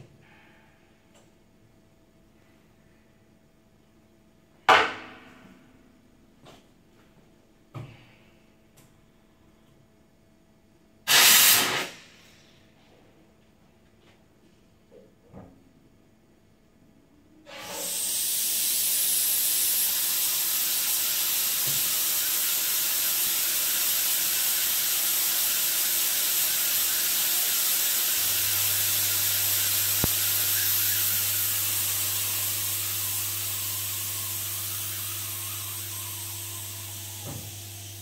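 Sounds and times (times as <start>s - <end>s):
steam hissing: 11.1s - 12.0s, 17.5s - 38.0s.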